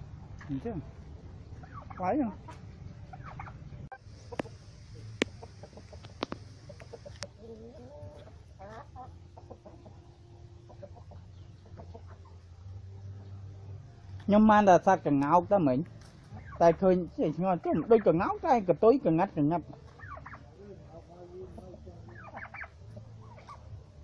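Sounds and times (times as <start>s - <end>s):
turkeys and chicken calling: 1.4s - 13.6s, 16.0s - 24.0s.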